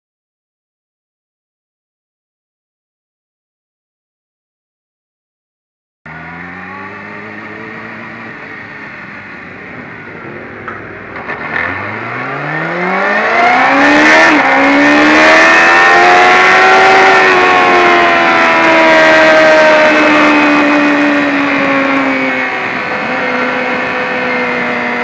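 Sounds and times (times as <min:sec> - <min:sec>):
motorcycle engine accelerating: 0:06.1 - 0:25.0.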